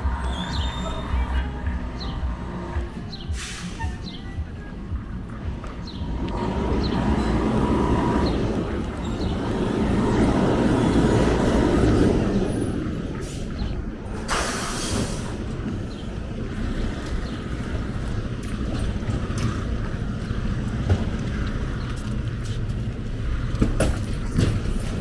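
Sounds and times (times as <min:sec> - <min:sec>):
garbage truck engine rumbling: 0:00.0 - 0:25.0
loud hiss of air: 0:03.3 - 0:03.9, 0:14.2 - 0:15.5.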